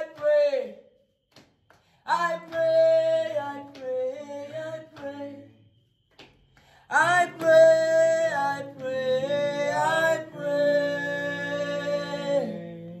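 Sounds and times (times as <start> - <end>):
men singing a chant unaccompanied: 0.0 - 0.8, 2.1 - 5.6, 6.9 - 13.0.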